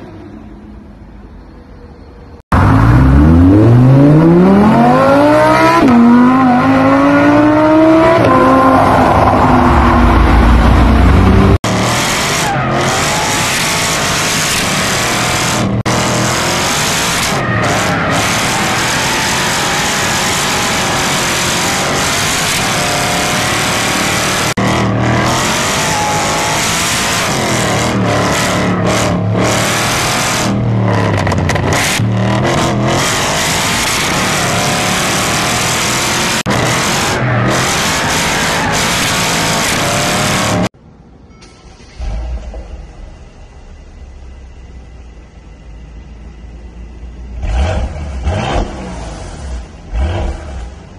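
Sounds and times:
car engine revving: 0:02.5 - 0:40.8.

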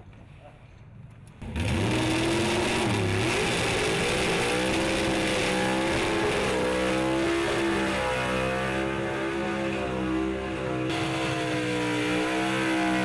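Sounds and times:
drag racing car engine: 0:01.4 - 0:13.0.

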